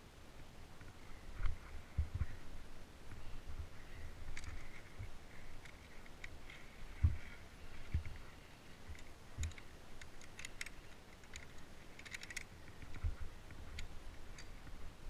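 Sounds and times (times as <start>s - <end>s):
carabiners clinking on steel cable: 8.9s - 13.0s.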